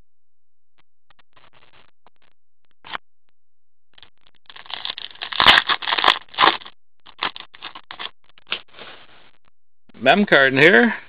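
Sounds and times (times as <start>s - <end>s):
foil wrapper tearing and crinkling: 4.4s - 8.8s.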